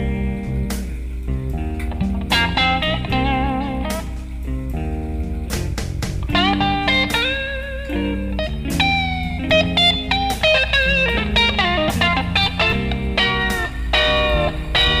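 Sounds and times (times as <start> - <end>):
bluesy guitar lead: 0.0 - 15.0
low bass line: 0.0 - 15.0.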